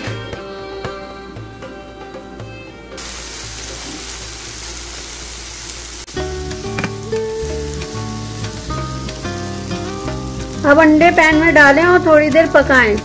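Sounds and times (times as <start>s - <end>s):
background music: 0.0s - 13.0s
vegetables sizzling in frying pan: 3.0s - 13.0s.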